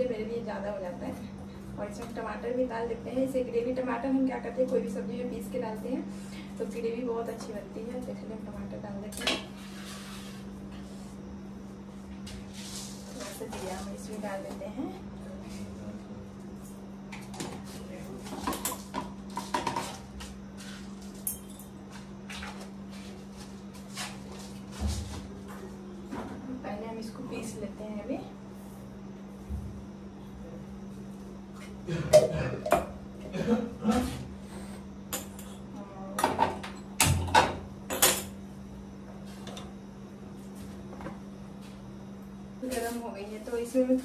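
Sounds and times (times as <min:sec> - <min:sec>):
steady low hum: 0:00.0 - 0:44.0
utensils knocking against bowl: 0:18.3 - 0:20.0, 0:32.1 - 0:33.0.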